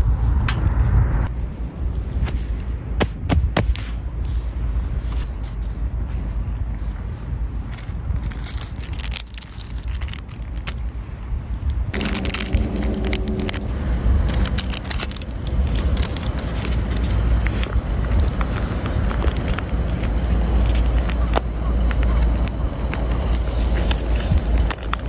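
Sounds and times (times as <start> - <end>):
wind on microphone: 0.0 - 25.0
foil packet crinkling and ripping: 7.7 - 25.0.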